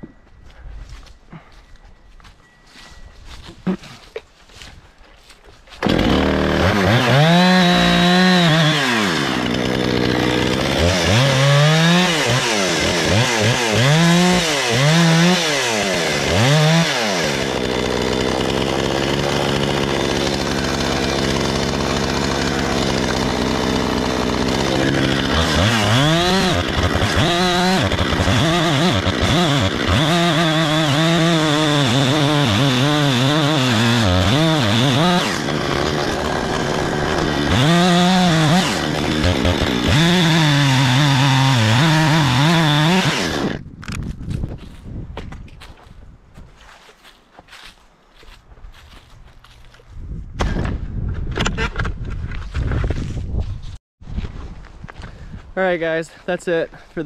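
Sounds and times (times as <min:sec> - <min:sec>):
chainsaw revving while cutting wood: 0:05.8 - 0:43.6.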